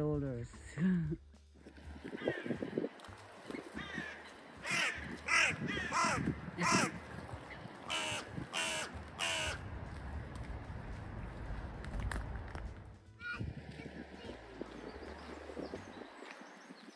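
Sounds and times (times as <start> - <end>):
crows cawing: 2.1 - 2.8, 3.7 - 7.1, 7.8 - 9.7.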